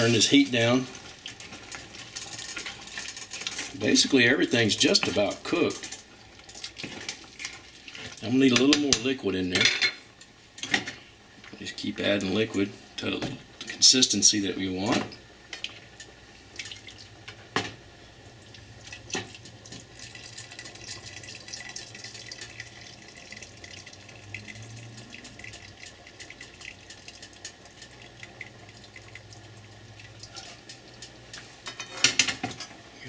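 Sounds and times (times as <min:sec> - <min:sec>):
liquid splashing and trickling: 0:18.4 - 0:31.1.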